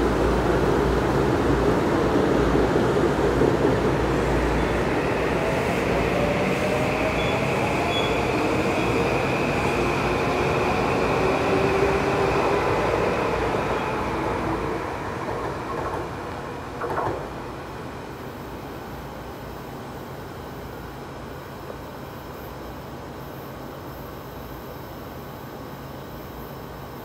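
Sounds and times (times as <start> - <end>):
train wheels rumbling: 0.0 - 17.7.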